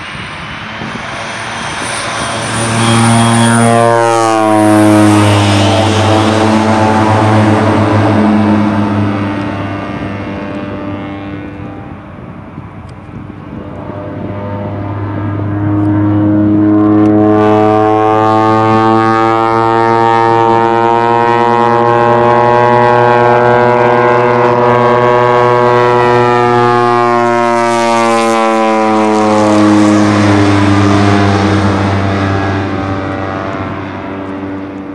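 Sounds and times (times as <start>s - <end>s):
propeller plane flying past: 0.0s - 34.9s.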